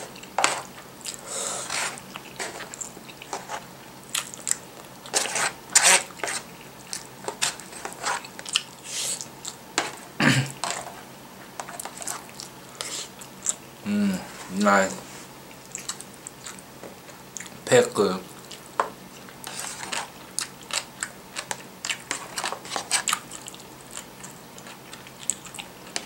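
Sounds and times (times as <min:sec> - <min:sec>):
crunchy chewing: 0:00.0 - 0:10.0, 0:11.6 - 0:13.6, 0:15.5 - 0:17.6, 0:18.3 - 0:26.0.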